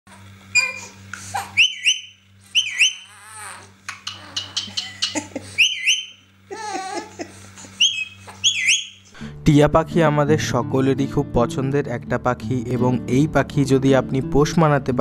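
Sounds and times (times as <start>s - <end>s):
baby fussing cries: 0.1s - 1.6s, 2.5s - 4.7s, 6.5s - 7.3s
parakeet high whistle: 1.6s - 3.2s, 4.1s - 6.2s, 7.8s - 9.1s.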